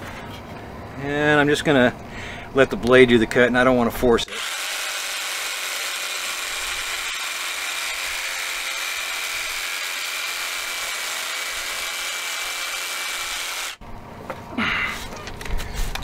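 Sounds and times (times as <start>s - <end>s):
jigsaw cutting plastic tube: 4.3s - 13.8s.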